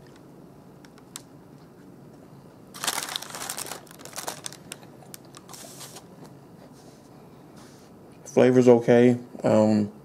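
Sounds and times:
plastic wrapper crinkling: 2.7s - 6.0s.

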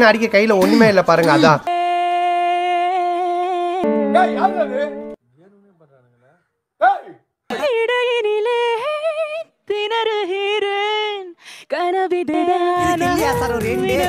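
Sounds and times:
woman singing: 1.7s - 4.5s, 7.5s - 14.0s
backing music: 3.8s - 5.2s, 12.8s - 14.0s.

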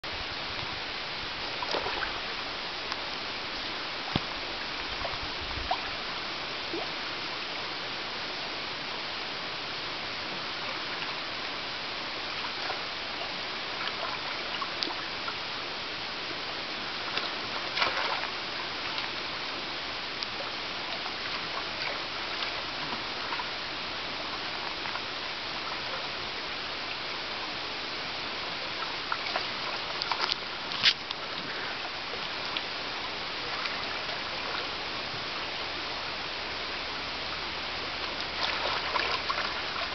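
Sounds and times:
stream running over stones: 0.0s - 39.9s
animals splashing in water: 1.5s - 2.3s, 16.9s - 19.2s, 38.0s - 39.9s.

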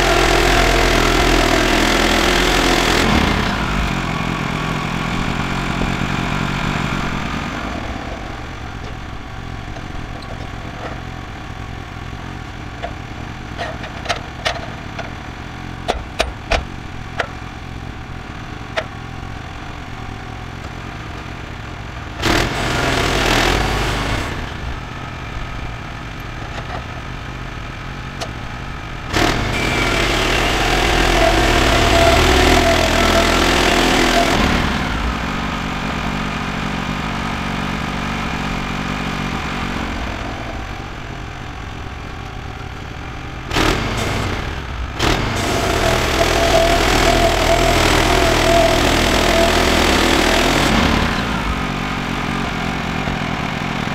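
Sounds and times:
sawmill engine running: 0.0s - 53.9s
log knocks and clanks: 13.6s - 15.2s, 15.9s - 17.4s.

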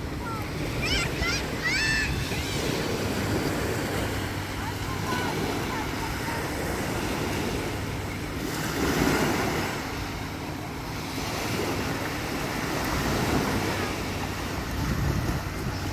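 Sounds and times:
waves washing up on beach: 0.0s - 15.9s.

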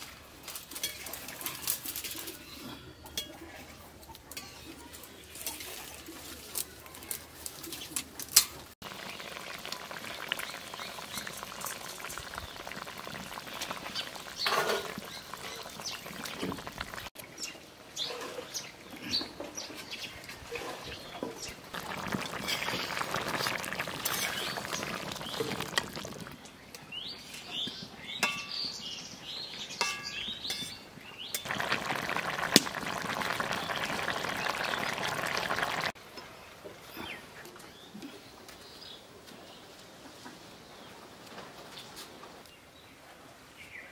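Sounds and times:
curry bubbling and hissing: 8.8s - 17.2s, 20.4s - 26.4s, 31.5s - 36.0s
birds chirping: 8.9s - 35.9s.

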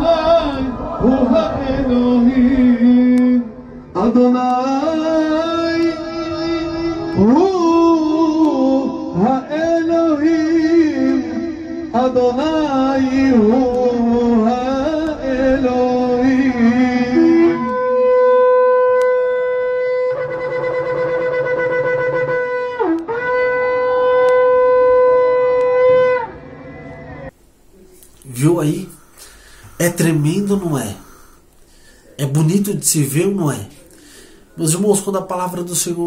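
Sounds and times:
shofar blasts: 17.2s - 27.3s.

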